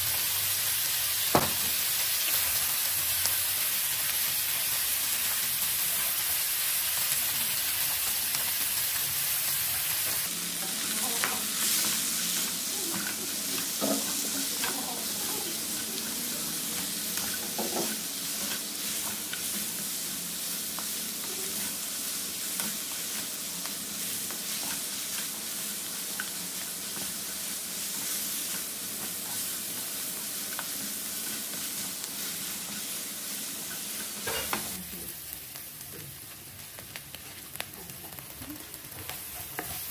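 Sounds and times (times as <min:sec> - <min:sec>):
meat and onions sizzling in oil: 0:00.0 - 0:39.9
wooden spatula scraping wok: 0:10.0 - 0:20.9, 0:21.5 - 0:34.8, 0:36.7 - 0:39.9.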